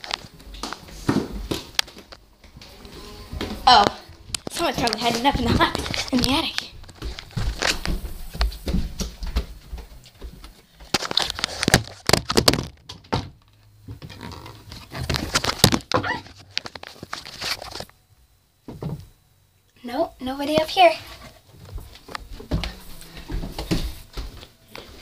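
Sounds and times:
thumps and knocks of climbing: 3.3s - 10.5s.

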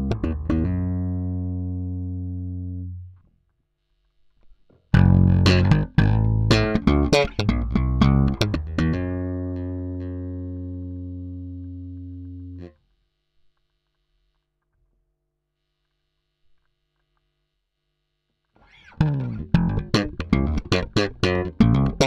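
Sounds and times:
electric bass plucked notes: 0.0s - 3.2s, 4.9s - 12.7s, 18.7s - 22.0s.

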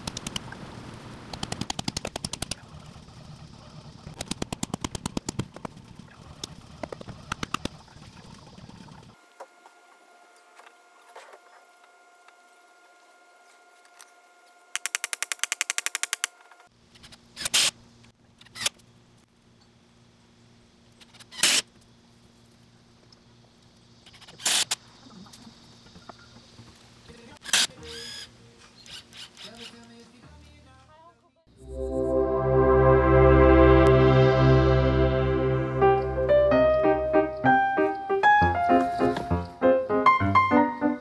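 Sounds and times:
rapid even clicks: 1.3s - 2.6s.

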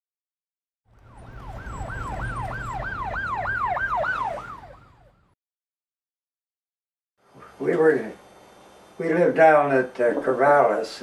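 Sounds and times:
siren yelping: 1.0s - 5.4s.

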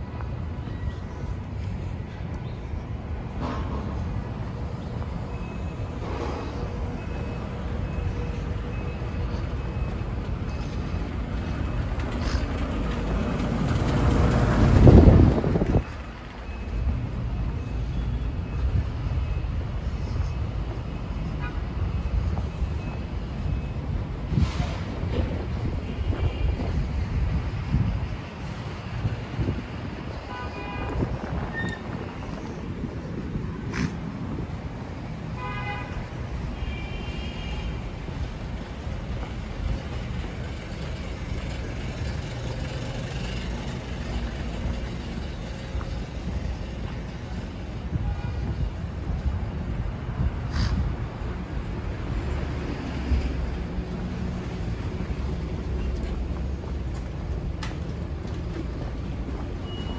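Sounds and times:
low rumble of traffic: 0.0s - 59.9s.

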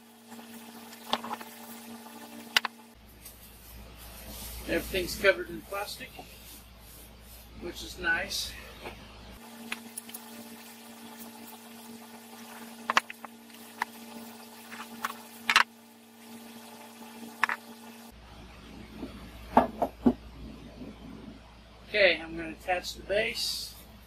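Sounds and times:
steady low hum: 0.0s - 24.0s
parts knocking on wooden workbench: 19.6s - 20.2s.

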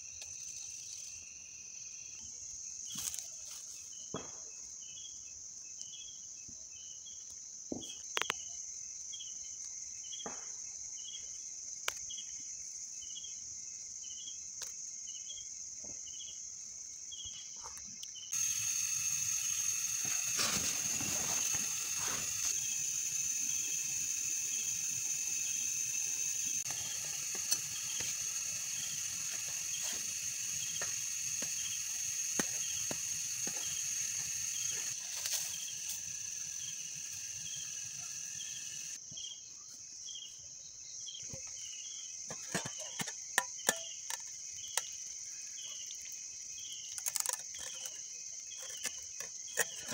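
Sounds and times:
insects trilling: 0.0s - 49.9s
slow pulsing insect call: 0.0s - 49.9s
campfire crackling: 18.3s - 39.0s.

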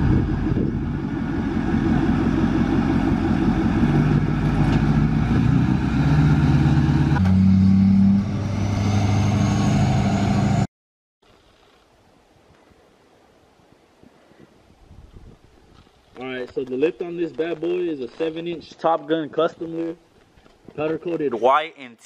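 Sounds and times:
diesel truck driving past: 0.0s - 10.7s.

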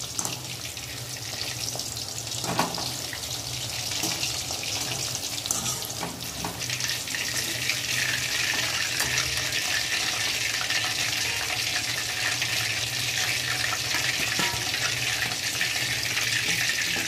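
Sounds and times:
deep-frying sizzling hiss: 0.0s - 17.0s
wire skimmer clicking on pan: 14.0s - 15.7s.

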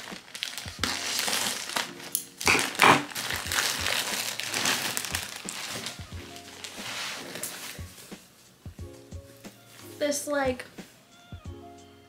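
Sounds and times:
plastic mailer bag crinkling: 0.0s - 8.1s.

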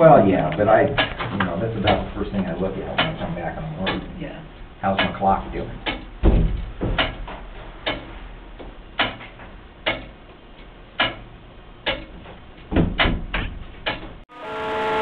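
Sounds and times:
clock movement ticking: 0.3s - 6.2s, 7.0s - 12.2s
heavy double knock: 5.8s - 7.3s.

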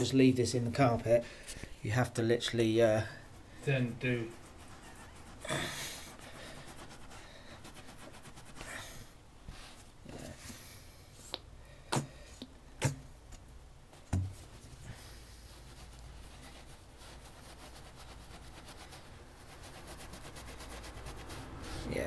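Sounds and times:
towel rubbing carpet: 3.2s - 8.8s, 14.4s - 22.0s.

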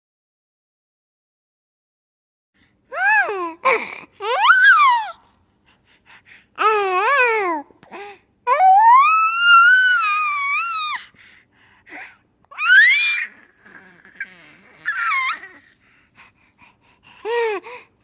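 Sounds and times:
baby squealing and wailing: 3.0s - 5.2s, 8.6s - 11.0s, 12.5s - 15.7s.

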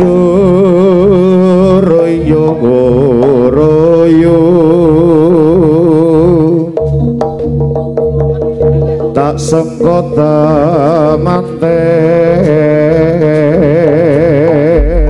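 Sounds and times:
wavering melody with vibrato: 0.0s - 13.3s
drumming: 14.5s - 15.0s
steady held tones: 14.8s - 15.0s.

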